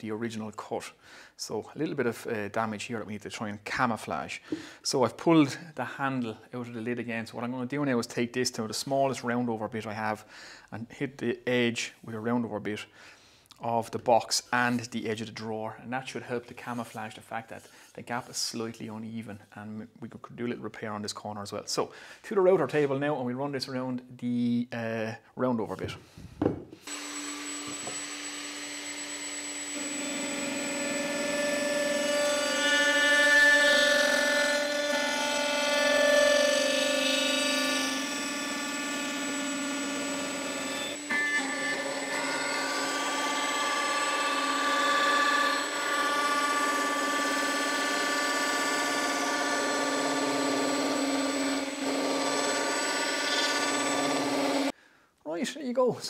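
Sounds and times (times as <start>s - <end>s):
router bit cutting wood: 26.8s - 54.7s
router spinning with high whine: 26.8s - 54.7s.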